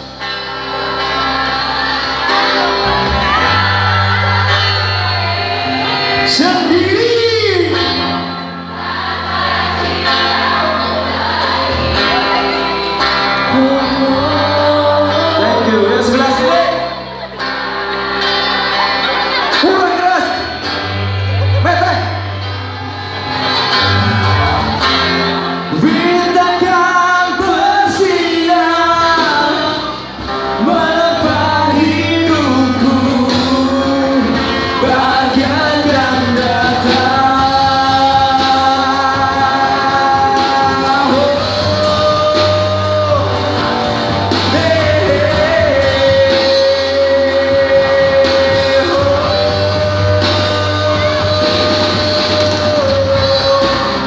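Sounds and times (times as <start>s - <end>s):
live rock band playing: 0.0s - 54.0s
man singing into a microphone: 5.6s - 8.4s, 13.2s - 17.2s, 25.6s - 54.0s.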